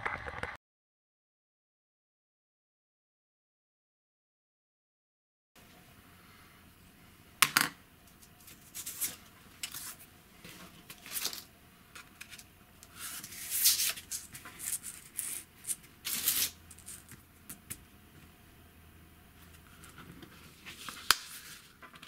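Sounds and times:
paper rustling: 8.4s - 17.2s, 19.4s - 22.0s.

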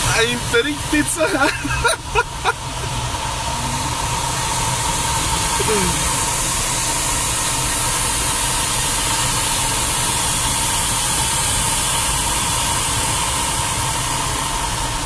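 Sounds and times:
air rushing past cockpit: 0.0s - 15.0s.

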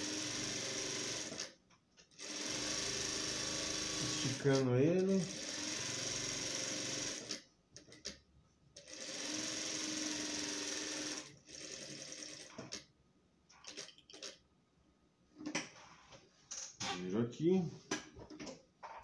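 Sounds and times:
sewing machine stitching: 0.0s - 8.2s, 8.8s - 12.8s.

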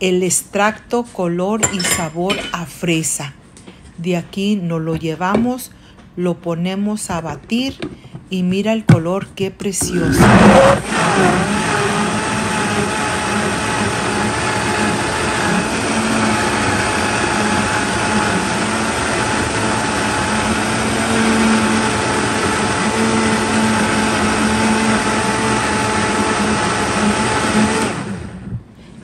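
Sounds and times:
blender motor running: 9.8s - 28.4s.

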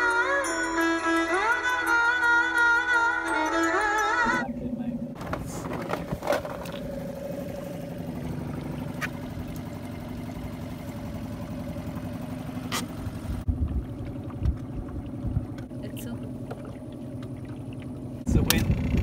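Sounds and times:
outboard motor running: 0.0s - 19.0s.

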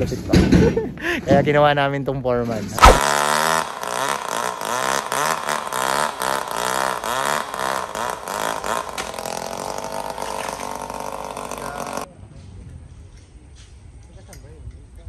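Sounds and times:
chainsaw engine revving: 2.8s - 12.1s.

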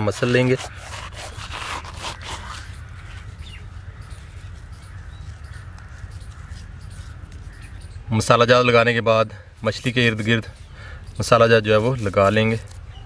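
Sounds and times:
seeds crushed between palms: 0.0s - 7.8s, 11.2s - 13.0s
faint bird chirps: 12.3s - 13.0s.

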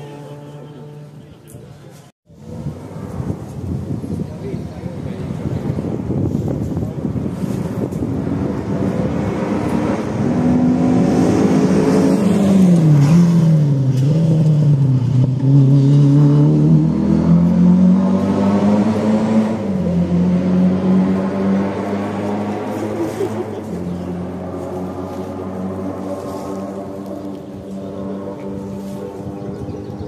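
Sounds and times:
rally car engine revving: 7.0s - 30.0s.

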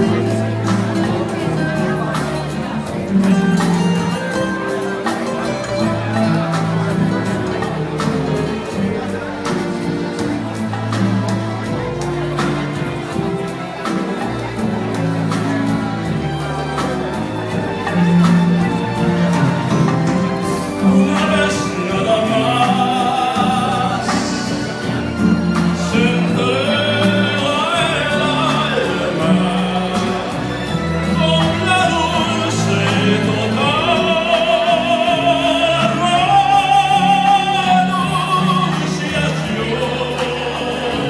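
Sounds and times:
instrumental accompaniment: 0.0s - 41.0s
man singing operatic tenor: 20.8s - 41.0s.

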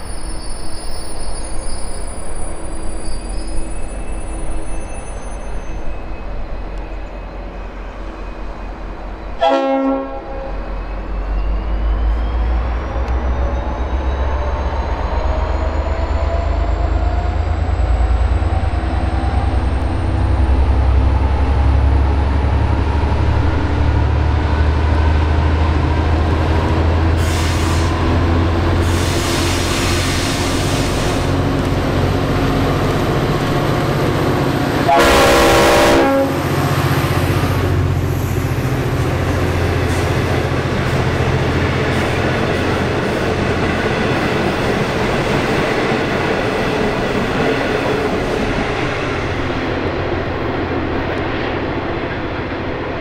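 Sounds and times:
train horn blast: 9.4s - 10.6s, 34.8s - 36.8s
locomotive engine rumble: 10.3s - 53.0s.

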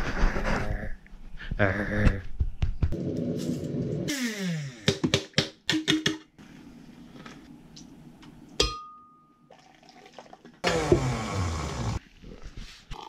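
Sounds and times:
liquid pouring into jar: 9.5s - 10.6s.

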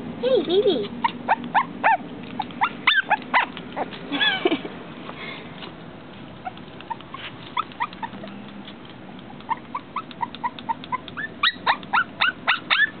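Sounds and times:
puppy whining: 0.8s - 4.7s, 5.6s - 13.0s.

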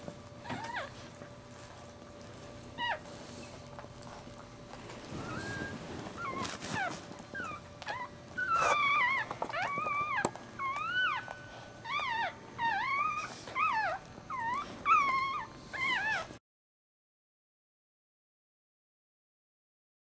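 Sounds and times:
puppies squeaking: 0.4s - 1.0s, 2.8s - 3.6s, 5.0s - 16.3s.

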